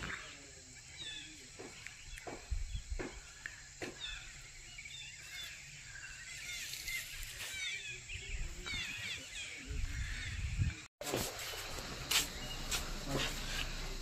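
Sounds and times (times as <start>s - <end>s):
downward-sweeping bird calls: 0.0s - 10.5s
bird chirps: 0.0s - 10.7s.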